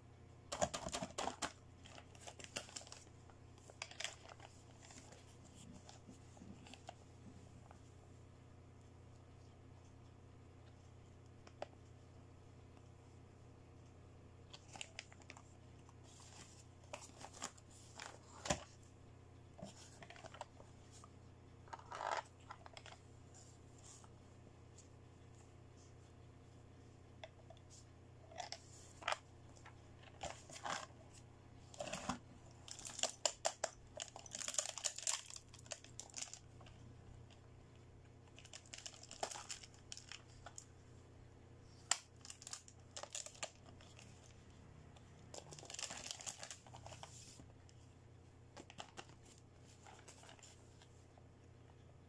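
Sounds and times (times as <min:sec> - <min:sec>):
plastic bags crinkling: 0:00.5 - 0:07.0, 0:21.7 - 0:23.5, 0:31.7 - 0:36.8, 0:38.3 - 0:40.7, 0:41.8 - 0:44.3, 0:45.3 - 0:47.4.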